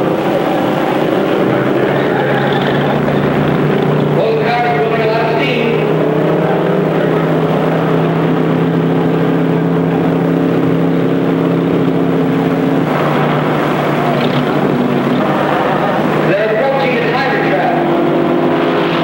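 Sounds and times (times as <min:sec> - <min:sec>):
engine droning steadily: 0:00.0 - 0:19.0.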